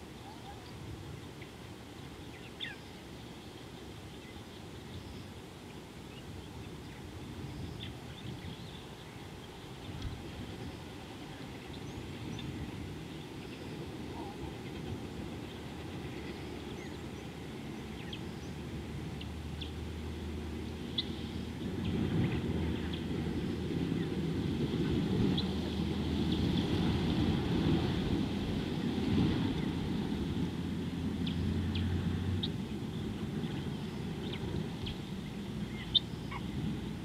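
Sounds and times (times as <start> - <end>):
low steady rumble: 0.0 - 37.0
faint bird chirps: 35.7 - 36.6.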